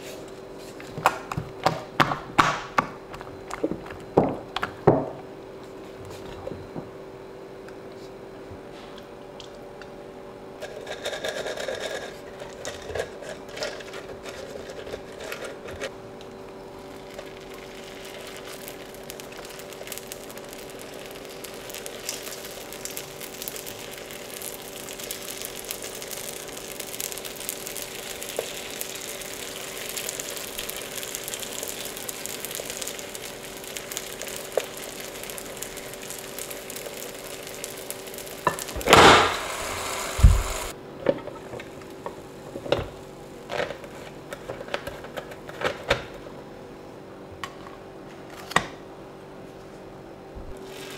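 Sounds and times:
steady hum: 12.3 - 43.4
batter sizzling: 16.2 - 40.8, 50.5 - 50.9.

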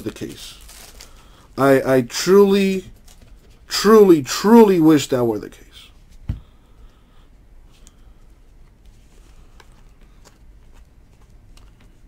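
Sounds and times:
low steady hum: 0.0 - 12.0
trading cards clicking and rustling: 8.7 - 12.0.

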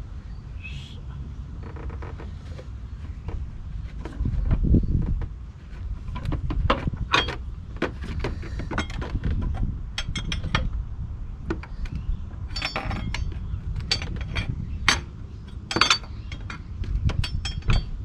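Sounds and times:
plastic parts knocking: 3.1 - 10.6.

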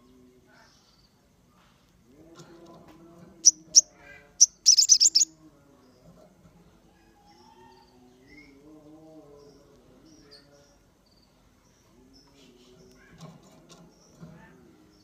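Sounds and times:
songbird chirping: 0.0 - 15.0
fainter lower bird calls: 3.4 - 5.3.

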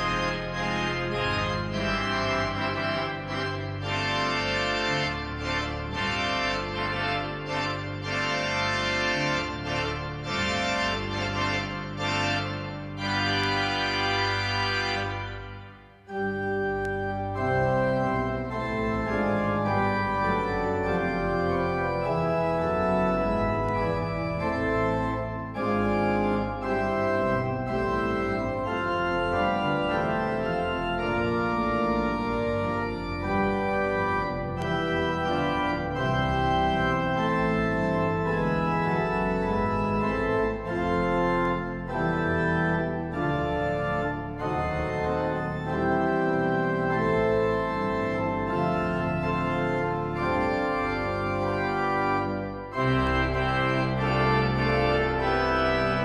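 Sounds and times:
church organ chords: 0.0 - 56.0.

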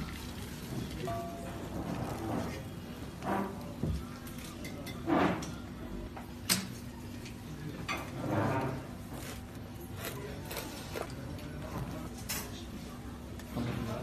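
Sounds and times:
knife cutting crusty bread: 8.6 - 12.2.

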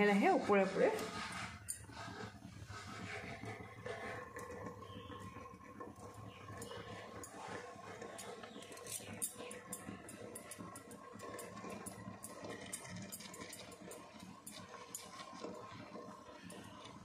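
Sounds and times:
spoon scraping and tapping bowl: 0.9 - 2.0, 6.6 - 7.4, 8.1 - 15.2.

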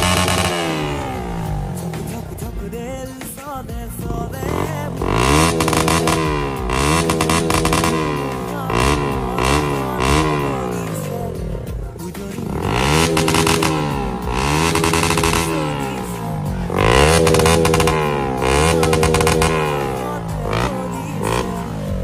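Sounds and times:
motorcycle engine revving: 0.0 - 22.0.

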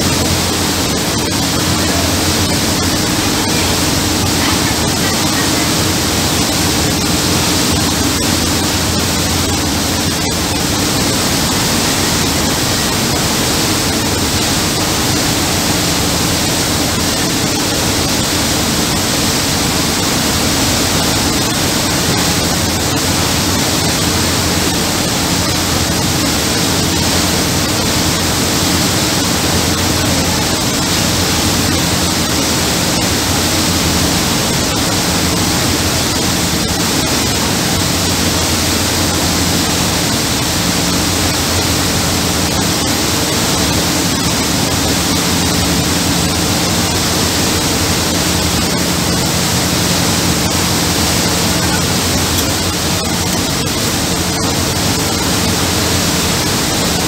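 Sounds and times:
boat wake rushing: 0.0 - 57.0
low engine drone: 0.0 - 57.0.

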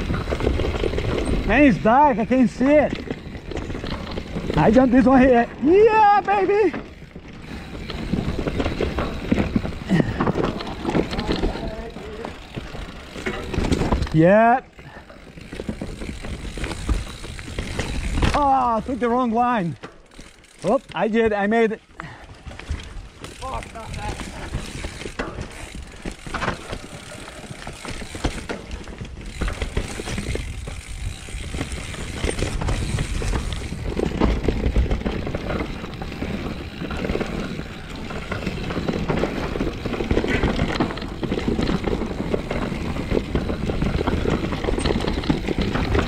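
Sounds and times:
bike rattling over bumps: 0.0 - 46.0
bike tyres rumbling on dirt: 0.0 - 46.0
freewheel ratchet buzzing: 6.9 - 13.6, 14.7 - 19.1, 19.9 - 20.9, 23.2 - 28.6, 29.2 - 34.2.

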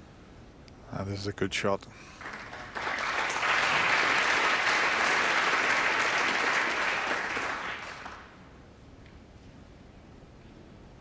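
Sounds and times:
crowd applauding: 2.2 - 8.4.

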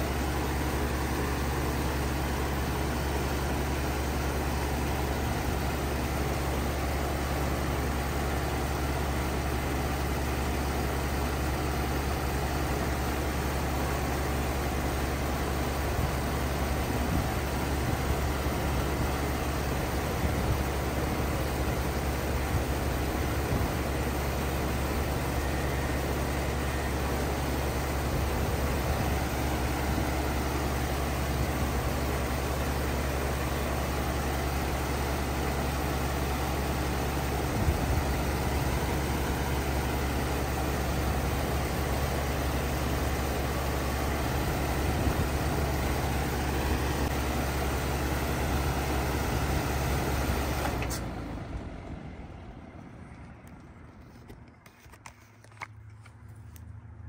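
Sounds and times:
compressor low hum: 0.0 - 57.0
outdoor fan rushing: 0.0 - 57.0.

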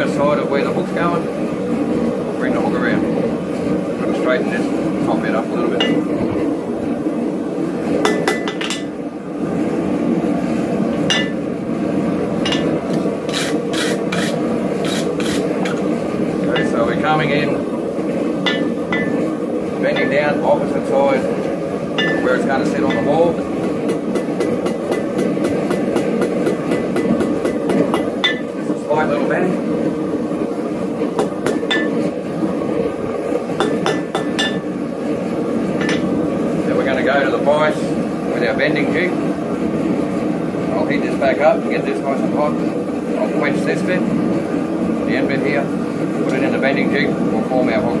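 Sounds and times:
hammer striking steel on anvil: 5.8 - 6.0, 11.1 - 11.4, 12.4 - 12.8, 18.5 - 19.2, 22.0 - 23.1, 23.9 - 28.5, 31.2 - 32.0, 33.6 - 34.6
steady low rush: 8.7 - 24.9
wire brush scrubbing steel: 12.5 - 15.8.

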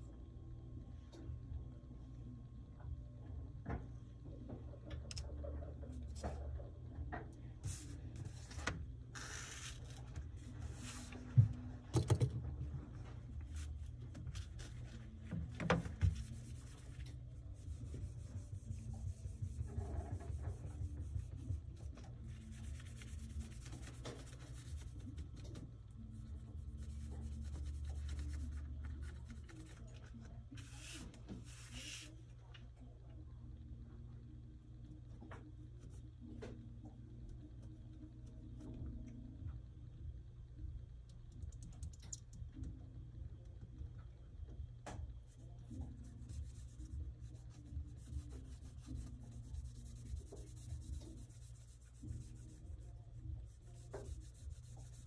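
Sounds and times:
cloth rubbing on glass screen: 7.6 - 11.7, 12.8 - 29.9, 30.5 - 32.2, 45.7 - 55.0.

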